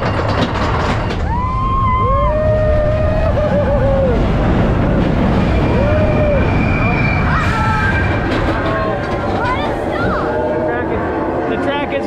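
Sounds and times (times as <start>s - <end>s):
roller coaster rumbling on track: 0.0s - 12.0s
riders whooping: 1.2s - 4.8s, 5.4s - 8.6s.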